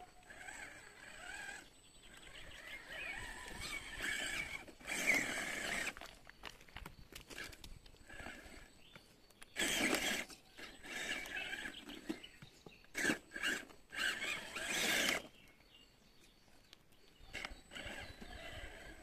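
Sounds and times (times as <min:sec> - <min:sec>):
electric motor whirring: 0:00.0 - 0:06.1, 0:07.3 - 0:08.7, 0:09.5 - 0:12.3, 0:12.9 - 0:15.4, 0:17.3 - 0:19.0.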